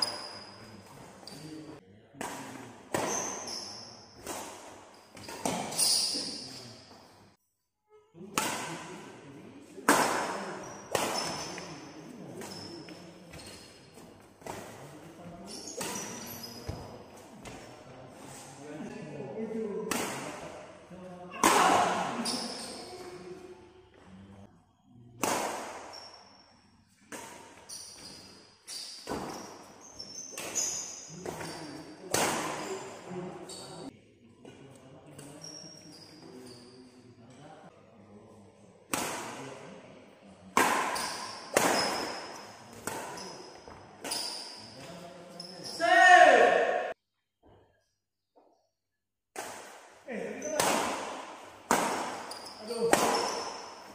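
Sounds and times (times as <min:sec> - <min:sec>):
shoes squeaking on court floor: 0:00.0 - 0:01.6, 0:03.0 - 0:07.2, 0:10.5 - 0:17.7, 0:22.2 - 0:23.2, 0:27.5 - 0:33.9, 0:35.2 - 0:36.8, 0:40.9 - 0:45.8, 0:51.2 - 0:53.9
racket striking shuttlecock: 0:25.2 - 0:25.9, 0:40.5 - 0:43.3, 0:50.6 - 0:53.9.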